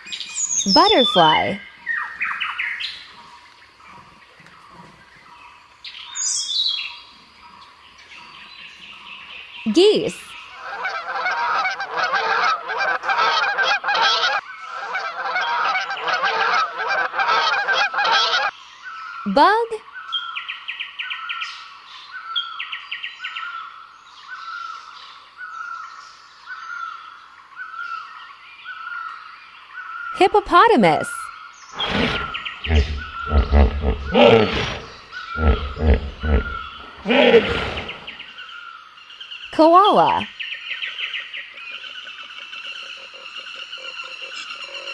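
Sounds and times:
geese honking: 10.6s - 18.5s, 31.8s - 38.2s
hippopotamus grunting calls: 31.8s - 38.3s.

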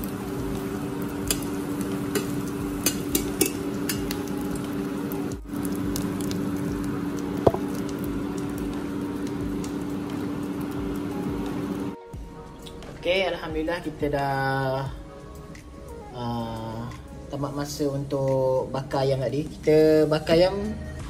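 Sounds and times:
omelette sizzling in oil: 0.0s - 12.0s
spatula clicking on pan: 2.1s - 4.2s.

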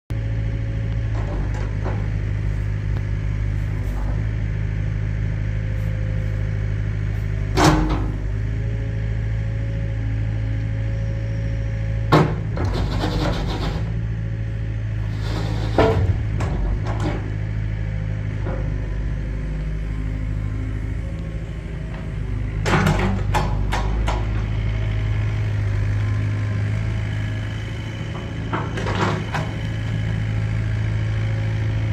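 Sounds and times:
diesel engine running: 0.1s - 31.9s
hydraulic boom working: 12.1s - 14.0s, 15.0s - 17.5s.

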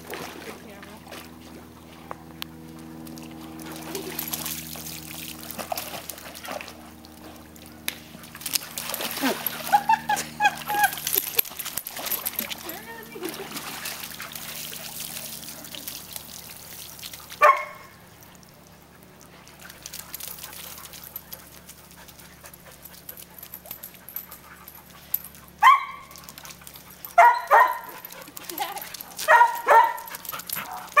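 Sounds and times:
husky barking: 17.4s - 17.9s, 25.6s - 26.2s, 27.1s - 28.0s, 29.2s - 31.0s.

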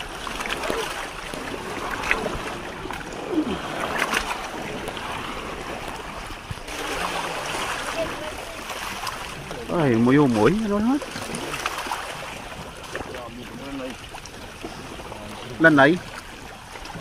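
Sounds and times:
water lapping against raft: 0.0s - 17.0s.

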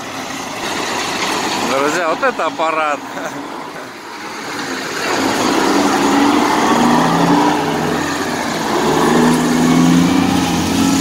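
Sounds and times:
dump truck diesel engine passing: 0.0s - 11.0s.

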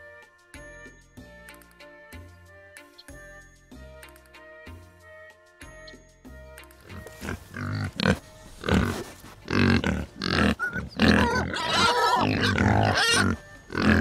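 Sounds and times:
pigs grunting and oinking: 6.9s - 14.0s.

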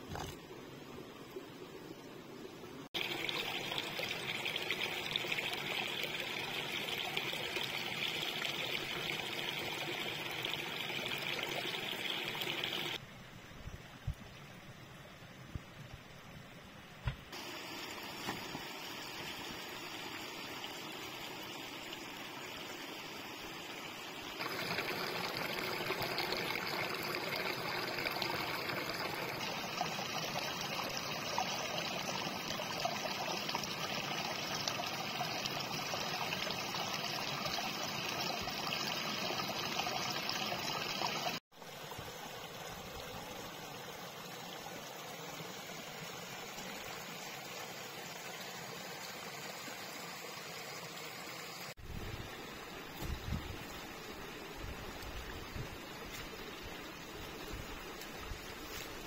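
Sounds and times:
water trickling: 3.0s - 13.0s, 17.4s - 50.1s.

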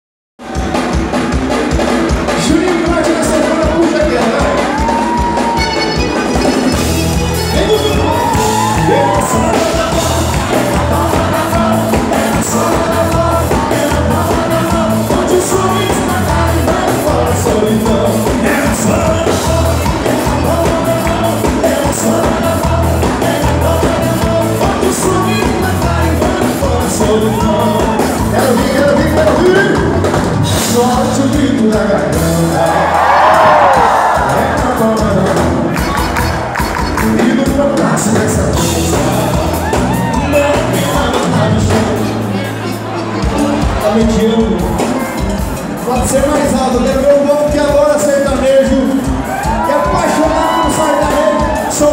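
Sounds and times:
electric guitar: 0.4s - 46.0s
bass: 0.4s - 51.9s
drums beat: 0.4s - 51.9s
accordion: 5.5s - 8.7s, 34.9s - 48.3s
people shouting: 7.7s - 13.8s, 49.3s - 51.9s.

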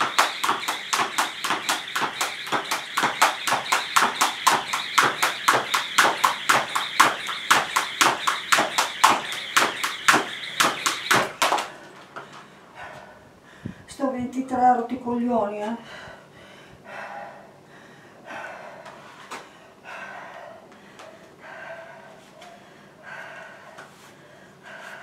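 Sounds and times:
jump rope slapping the floor: 0.0s - 11.8s.

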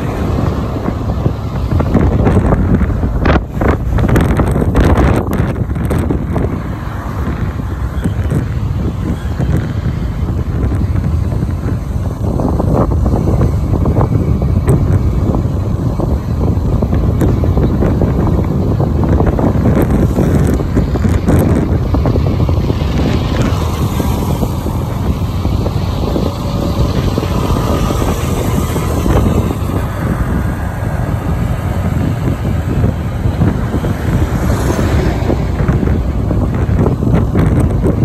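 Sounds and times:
moving vehicle running noise: 0.0s - 38.0s
wind buffeting microphone: 0.0s - 38.0s.

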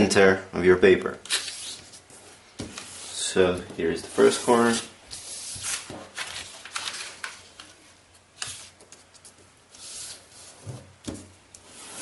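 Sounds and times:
paper rustling and crinkling: 4.1s - 7.8s.

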